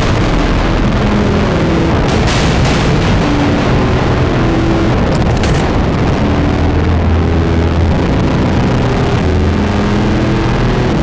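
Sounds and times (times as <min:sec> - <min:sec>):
industrial drone music: 0:00.0 - 0:11.0
brief crackle: 0:05.1 - 0:05.9.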